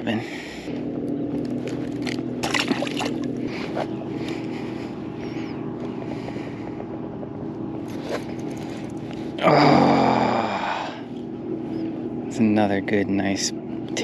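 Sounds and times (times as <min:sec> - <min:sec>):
motorboat engine drone: 0:00.0 - 0:14.0
fish splashing into water: 0:02.4 - 0:03.3.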